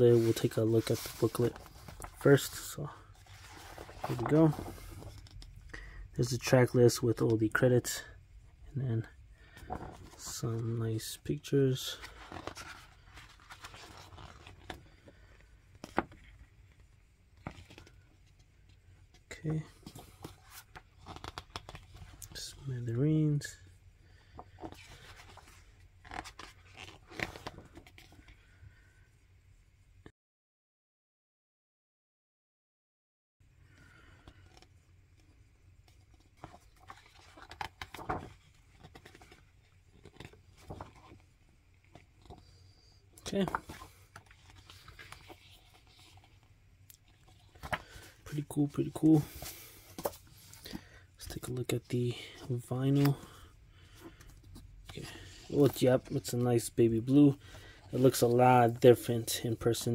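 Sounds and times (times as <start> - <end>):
paper pages rustling: 0.0 - 5.6, 9.4 - 10.7, 11.7 - 22.5, 24.2 - 28.4, 34.0 - 51.6, 52.3 - 59.9.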